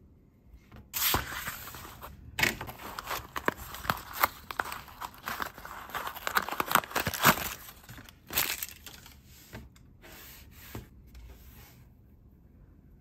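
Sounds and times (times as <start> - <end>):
cardboard box being torn open: 2.7 - 7.7.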